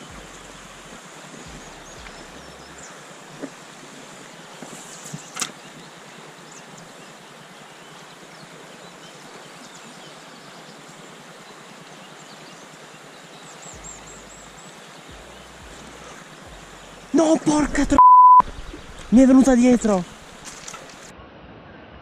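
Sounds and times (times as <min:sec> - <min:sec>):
faint low rumble: 0:00.0 - 0:02.9
river water rushing: 0:00.0 - 0:18.0, 0:18.7 - 0:21.1.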